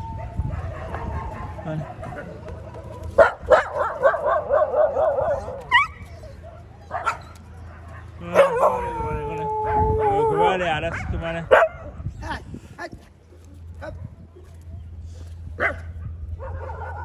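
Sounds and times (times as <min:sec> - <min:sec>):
dogs barking and yelping: 0:00.0 - 0:12.1, 0:15.5 - 0:17.0
dog howling: 0:08.2 - 0:10.9.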